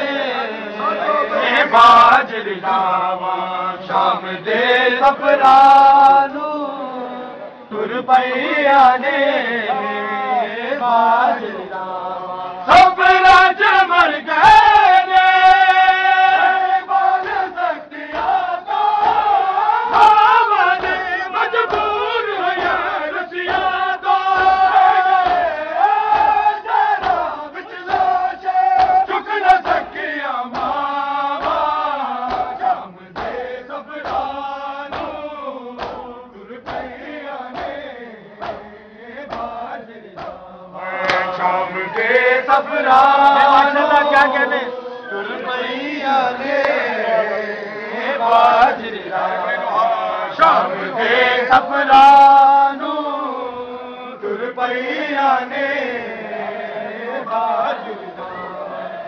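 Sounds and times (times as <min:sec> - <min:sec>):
men chanting in unison: 0:00.0 - 0:59.0
hands slapping on chests: 0:16.9 - 0:38.7, 0:39.3 - 0:42.2.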